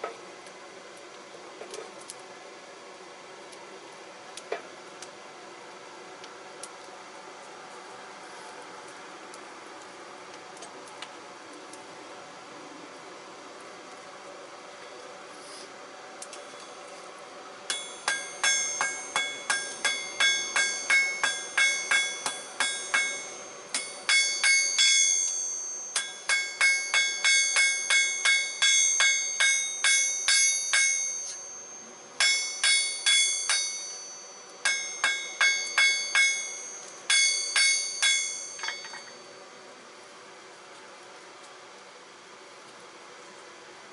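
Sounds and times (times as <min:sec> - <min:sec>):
hammer striking steel on anvil: 0:17.7 - 0:39.4.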